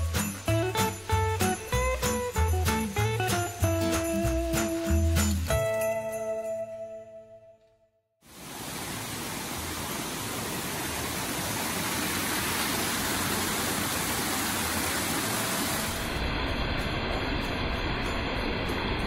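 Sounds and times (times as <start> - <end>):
tinkling music: 0.0 - 7.4
garden waterfall rushing: 8.2 - 19.0.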